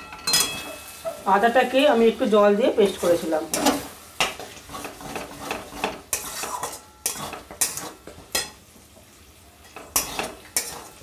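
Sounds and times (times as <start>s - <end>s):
spatula scraping metal pan: 3.0s - 8.6s, 9.8s - 11.0s.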